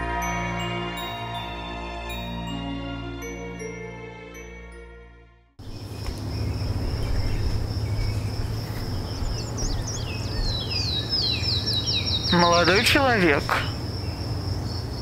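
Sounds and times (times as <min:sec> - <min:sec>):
crickets chirping: 0:05.6 - 0:15.0.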